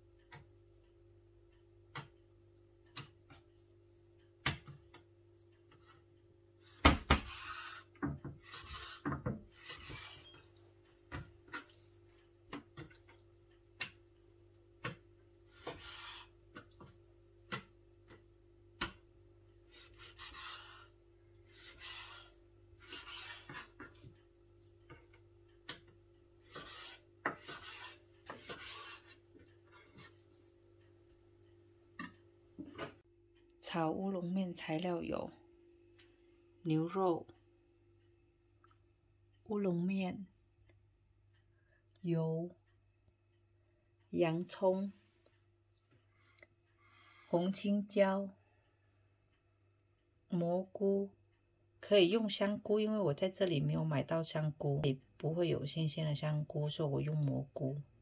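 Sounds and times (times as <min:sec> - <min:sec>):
faint steady hum: 0:00.0 - 0:56.4
knife slicing meat on board: 0:14.8 - 0:16.7, 0:19.7 - 0:20.9, 0:21.5 - 0:24.1, 0:26.4 - 0:29.2.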